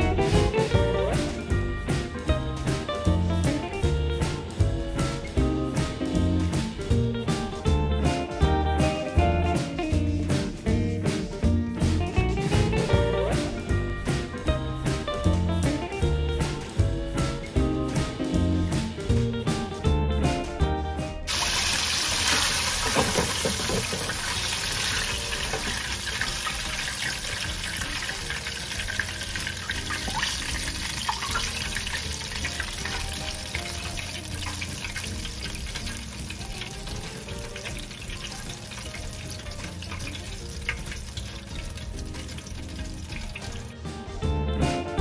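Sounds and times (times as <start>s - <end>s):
chicken sizzling in hot oil: 21.3s - 43.8s.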